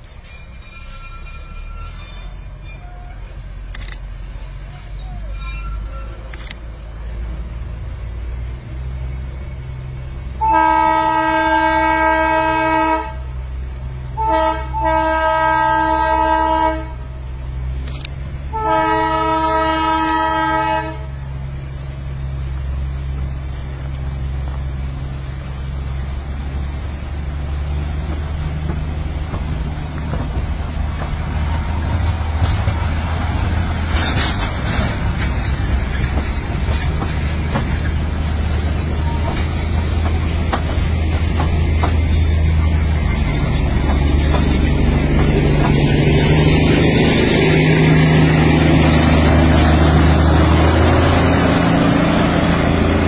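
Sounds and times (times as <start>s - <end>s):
train engine rumble: 0.0s - 53.0s
train horn blasts: 10.4s - 13.3s, 14.2s - 17.2s, 18.5s - 21.2s.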